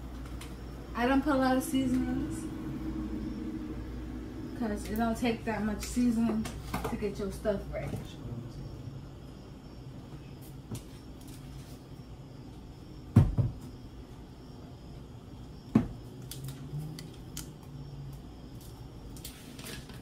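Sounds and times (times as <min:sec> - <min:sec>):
low steady hum: 0:00.0 - 0:10.4
bottles knocking on counter: 0:13.1 - 0:13.6.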